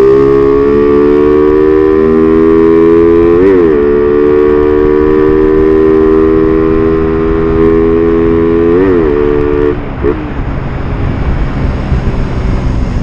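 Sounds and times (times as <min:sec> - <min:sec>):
motorcycle engine at high revs: 0:00.0 - 0:13.0
wind rush: 0:03.2 - 0:13.0.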